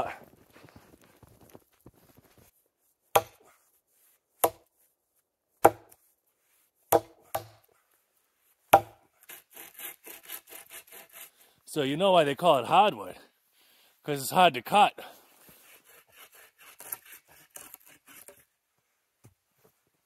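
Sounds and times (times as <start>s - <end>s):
axe chopping wood: 3.1s - 3.4s, 4.4s - 4.7s, 5.6s - 6.0s, 6.9s - 7.6s, 8.7s - 9.0s.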